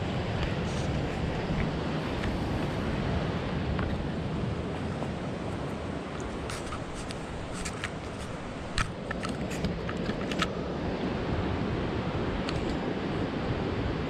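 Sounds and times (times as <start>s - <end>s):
river water rushing: 0.0s - 14.0s
light clicks and rattles: 6.2s - 10.5s.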